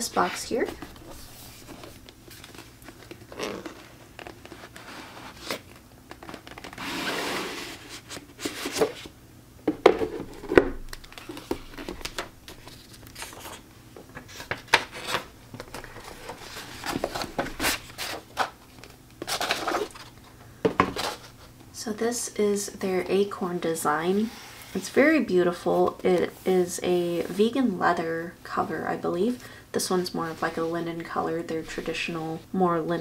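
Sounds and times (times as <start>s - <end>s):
paper rustling: 0.0s - 9.1s, 10.9s - 13.6s, 14.2s - 20.2s
cardboard box sliding rub: 4.5s - 5.6s, 6.8s - 9.0s.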